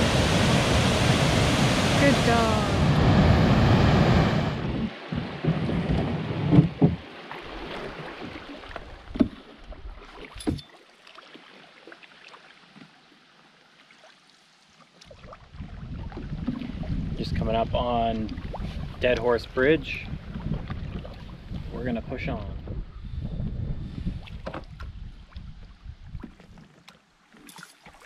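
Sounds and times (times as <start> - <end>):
wind noise: 0.0 - 7.0, 15.5 - 26.6
rushing water: 0.0 - 22.4
water splashes: 0.0 - 22.7, 24.1 - 28.0
paddle knocks: 5.1 - 7.1, 8.7 - 9.5.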